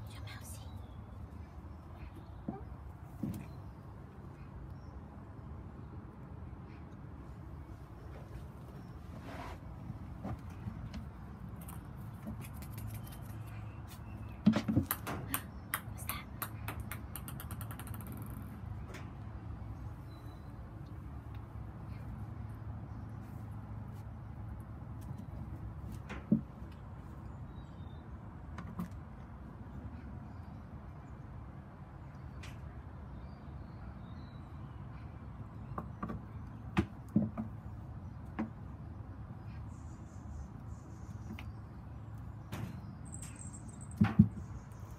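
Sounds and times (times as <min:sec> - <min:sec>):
plastic ball bouncing and rolling: 0:14.4 - 0:18.7.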